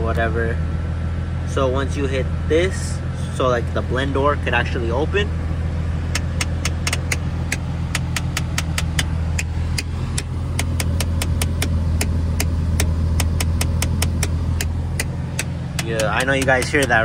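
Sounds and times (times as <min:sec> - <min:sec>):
car running hum: 0:00.0 - 0:17.0
actuator clicking rapidly: 0:10.6 - 0:17.0.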